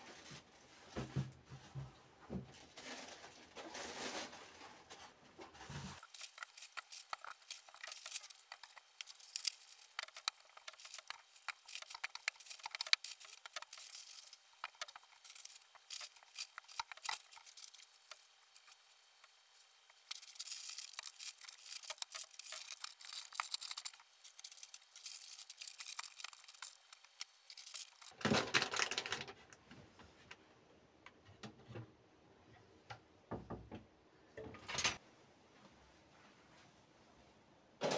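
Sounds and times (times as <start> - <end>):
plastic wrap crinkling and tearing: 2.6 - 5.1, 5.9 - 29.4.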